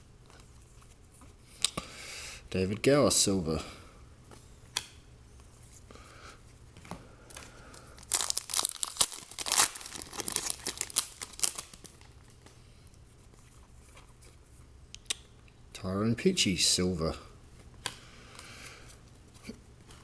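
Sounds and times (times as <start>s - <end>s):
foil wrapper tearing and crinkling: 8.0s - 12.2s.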